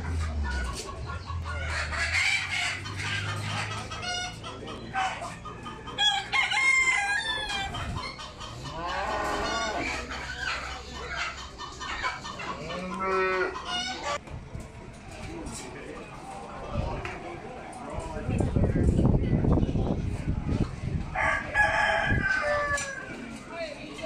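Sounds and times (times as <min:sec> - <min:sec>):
chickens clucking: 0:00.0 - 0:24.0
rooster crowing: 0:06.0 - 0:07.7, 0:21.2 - 0:23.2.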